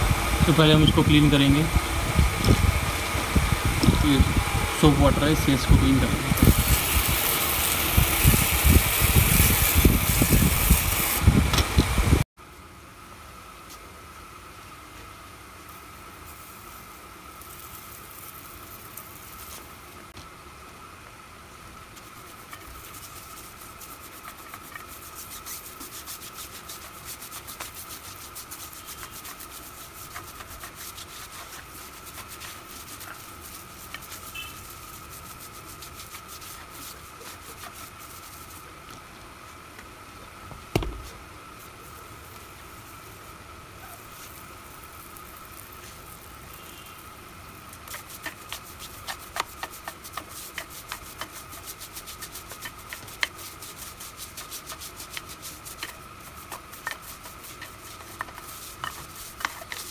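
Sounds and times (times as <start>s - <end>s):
thin steady whine: 0.0s - 59.9s
brush scrubbing a wheel: 3.2s - 11.2s, 16.2s - 19.8s, 21.9s - 38.8s, 41.6s - 46.9s, 47.5s - 59.9s
loud knock: 40.7s - 41.1s.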